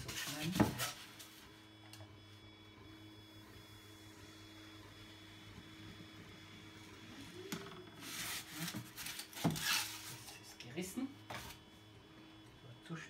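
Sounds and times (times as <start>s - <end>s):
printers humming: 0.0s - 13.0s
foam block scraping across table: 8.0s - 10.3s.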